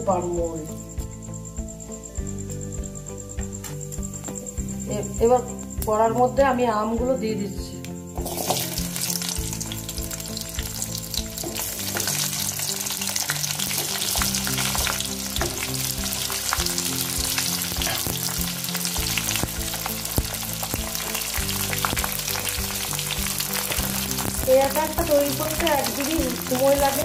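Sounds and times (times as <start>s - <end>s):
mango sizzling in hot oil: 8.2s - 27.0s.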